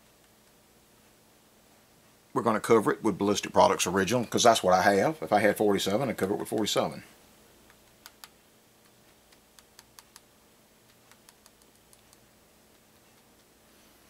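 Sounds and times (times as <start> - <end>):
small clicks and ticks: 7.6 - 13.6.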